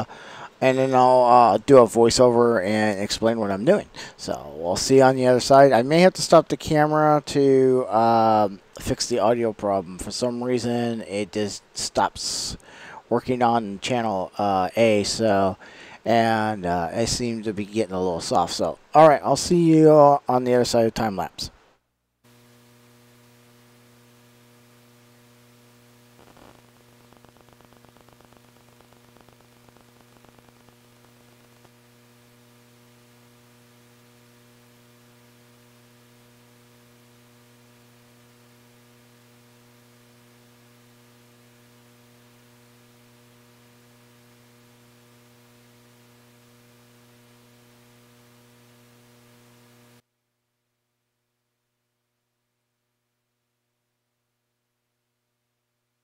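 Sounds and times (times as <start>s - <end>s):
electrical mains hum with hiss: 0.0s - 50.0s
crackling: 22.3s - 50.0s.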